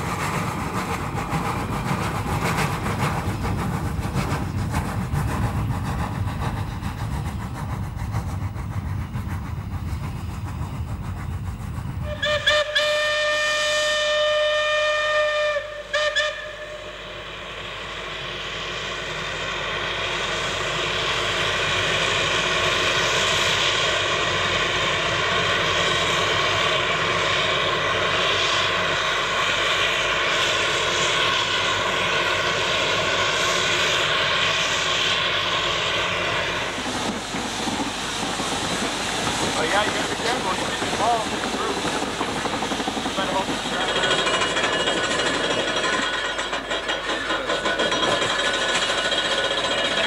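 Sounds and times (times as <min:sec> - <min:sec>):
steam locomotive exhaust chuffing: 0:00.0 - 0:50.0
steam whistle blowing: 0:12.0 - 0:17.2.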